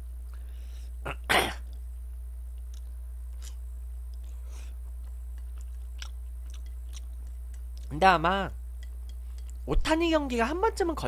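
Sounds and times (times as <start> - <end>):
man coughing: 1.0 - 1.7
faint mouth or chopstick ticks: 5.0 - 7.9.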